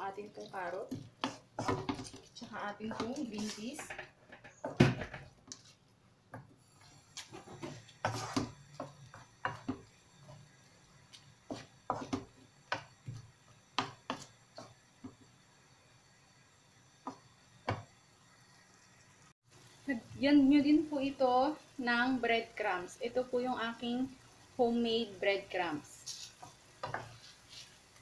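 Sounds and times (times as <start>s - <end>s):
wooden spoon scraping a wok: 0.0s - 5.8s, 6.4s - 15.3s, 25.5s - 28.0s.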